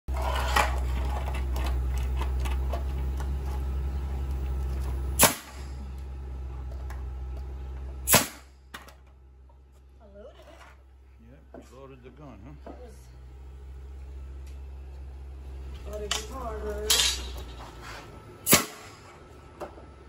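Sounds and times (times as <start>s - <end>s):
steady low hum: 0.1s - 20.0s
nail gun shots: 5.2s - 5.7s, 8.0s - 8.5s, 18.4s - 19.0s.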